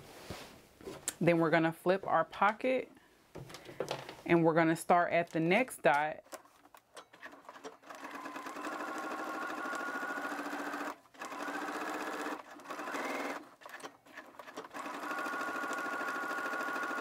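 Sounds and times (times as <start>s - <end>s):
sewing machine whirring: 7.0s - 17.0s.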